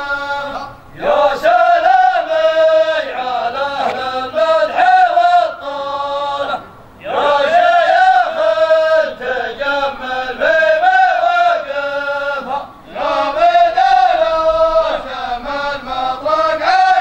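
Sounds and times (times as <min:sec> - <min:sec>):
person chanting a poem: 0:00.0 - 0:17.0.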